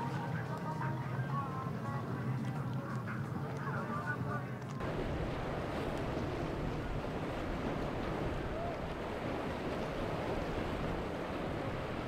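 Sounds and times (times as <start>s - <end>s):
wind: 0.0s - 12.0s
waves rushing: 4.8s - 12.0s.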